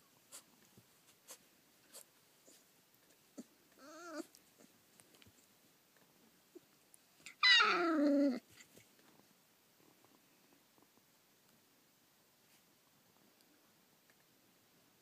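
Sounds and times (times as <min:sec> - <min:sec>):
puppy crying: 0:03.4 - 0:04.7, 0:07.3 - 0:08.5.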